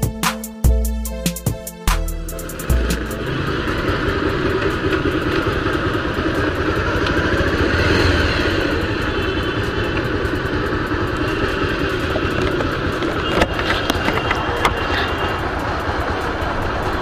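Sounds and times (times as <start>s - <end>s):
motorcycle engine running: 1.5s - 17.0s
wind and road noise: 2.4s - 17.0s.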